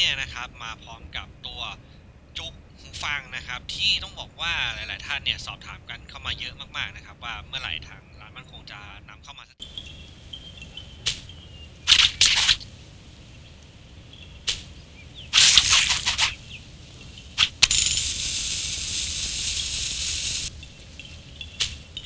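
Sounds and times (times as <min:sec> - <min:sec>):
blade swipes: 0:11.9 - 0:12.6, 0:15.4 - 0:16.4
lit fuse hissing: 0:14.4 - 0:21.8.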